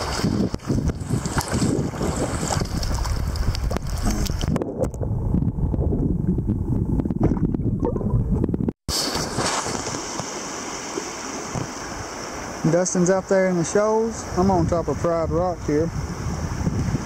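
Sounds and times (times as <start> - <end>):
muffled underwater river rushing: 0.0 - 15.0
underwater clicks and knocks: 2.5 - 8.8.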